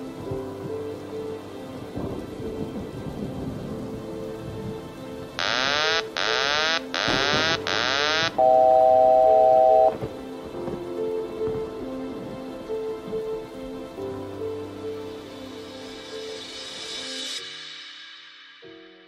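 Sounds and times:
rain: 0:00.0 - 0:17.2
soft sustained music: 0:00.0 - 0:19.0
loud steady electronic tone: 0:05.4 - 0:10.0.

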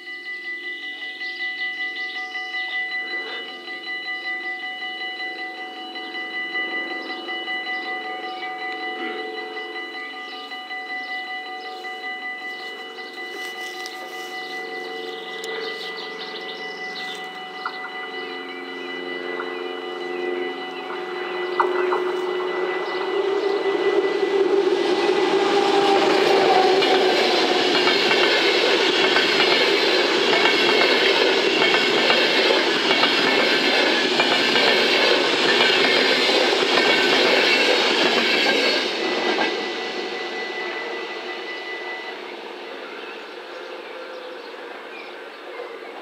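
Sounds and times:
crossing warning bells: 0:00.0 - 0:46.0
train wheels clattering over rails: 0:20.8 - 0:41.0.

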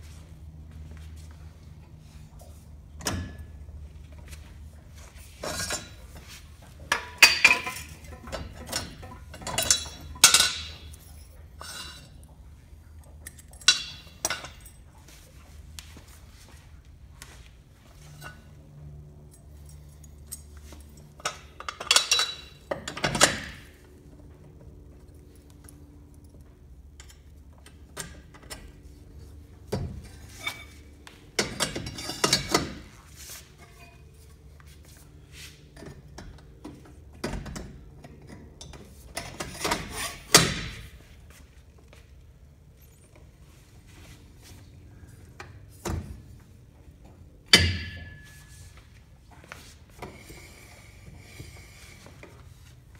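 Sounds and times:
metal clanks and knocks: 0:03.0 - 0:03.7, 0:05.3 - 0:12.2, 0:13.3 - 0:14.9, 0:35.7 - 0:41.1, 0:45.4 - 0:48.8.

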